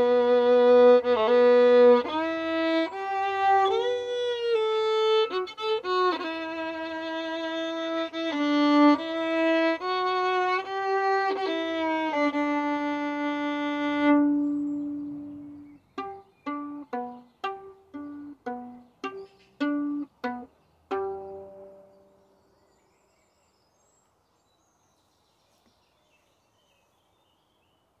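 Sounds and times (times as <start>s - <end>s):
plucked violin notes: 0.0s - 22.2s
violin bowed melody: 0.0s - 22.2s.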